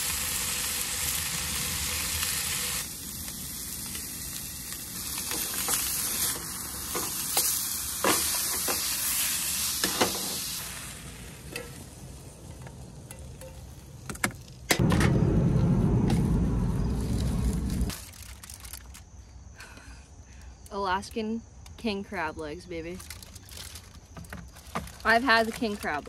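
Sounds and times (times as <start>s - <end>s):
fish sizzling in a frying pan: 0.0s - 13.0s
loud low rumble: 14.8s - 17.9s.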